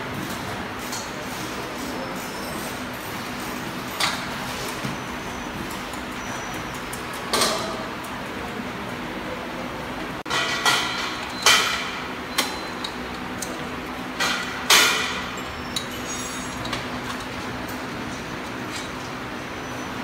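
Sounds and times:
metal clanks and clatters: 0:10.3 - 0:19.1.

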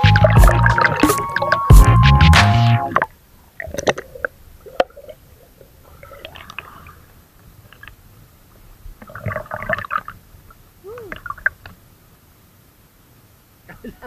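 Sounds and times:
river water splashing and gurgling: 0:00.0 - 0:08.1, 0:09.0 - 0:11.9.

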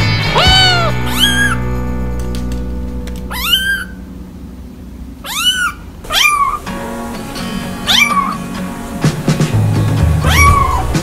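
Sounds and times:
background music: 0:00.0 - 0:04.7, 0:06.1 - 0:11.0
kittens meowing: 0:00.3 - 0:01.6, 0:03.3 - 0:04.0, 0:05.2 - 0:06.7, 0:07.8 - 0:08.4, 0:10.2 - 0:11.0.

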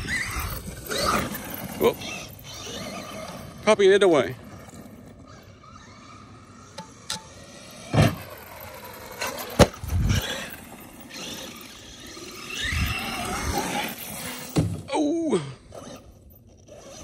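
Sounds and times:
electric motor whining: 0:00.0 - 0:14.8, 0:15.5 - 0:17.0
toy truck launching thump: 0:07.9 - 0:08.2, 0:09.4 - 0:09.9, 0:14.4 - 0:14.9
toy truck landing thud: 0:07.9 - 0:08.3, 0:09.4 - 0:09.9, 0:14.4 - 0:14.9.

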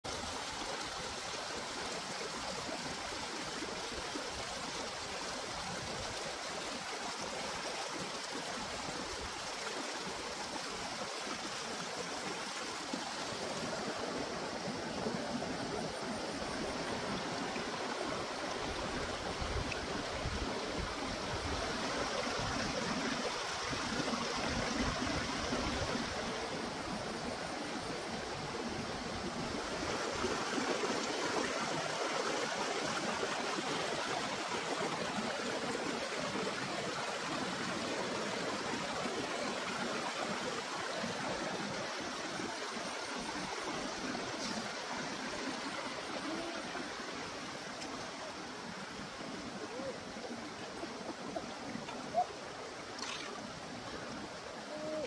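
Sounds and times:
stream rushing over stones: 0:00.0 - 0:55.0.

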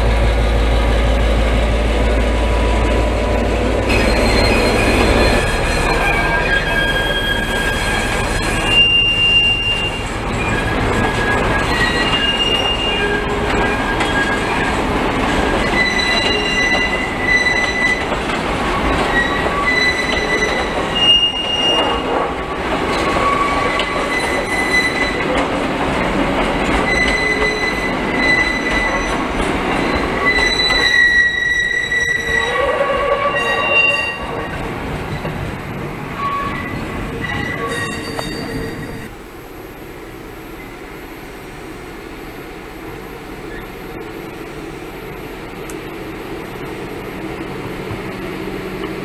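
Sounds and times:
train carriages rumbling past: 0:00.0 - 0:49.0
wheels squealing: 0:03.8 - 0:25.6, 0:26.6 - 0:39.1.

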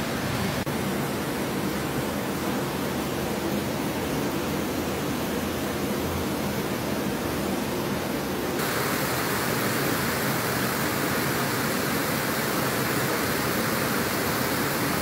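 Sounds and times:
floodwater rushing: 0:08.6 - 0:15.0.

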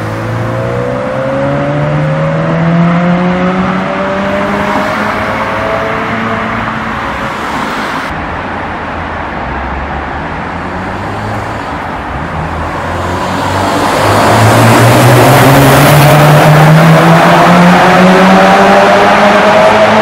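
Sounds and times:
car engine accelerating hard: 0:00.0 - 0:07.2, 0:12.4 - 0:20.0.

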